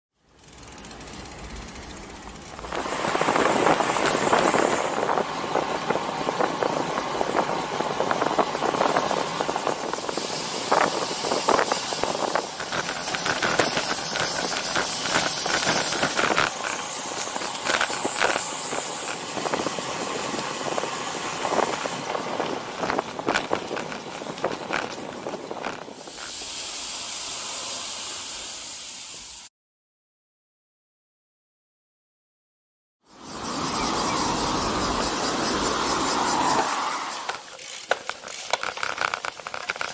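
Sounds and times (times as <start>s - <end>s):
bicycle road noise: 0.1s - 29.5s, 33.1s - 39.9s
crackles and clicks: 0.4s - 26.4s, 35.4s - 39.9s
wind noise on microphone: 2.6s - 26.4s.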